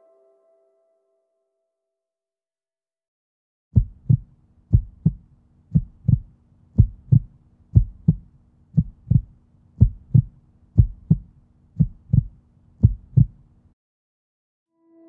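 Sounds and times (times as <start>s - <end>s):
heartbeat thumps: 3.8s - 13.4s.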